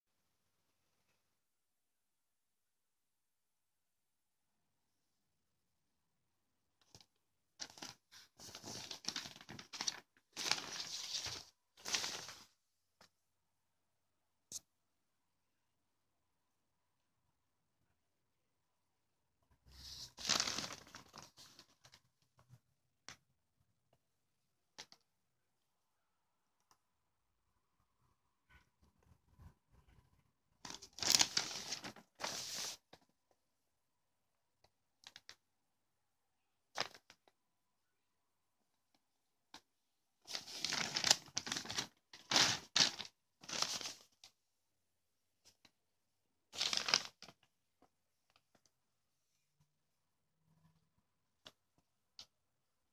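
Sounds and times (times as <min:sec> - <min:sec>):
paper pages rustling: 0:06.8 - 0:12.5, 0:19.7 - 0:22.1, 0:30.7 - 0:33.0, 0:36.8 - 0:37.2, 0:40.3 - 0:44.3, 0:46.6 - 0:47.5.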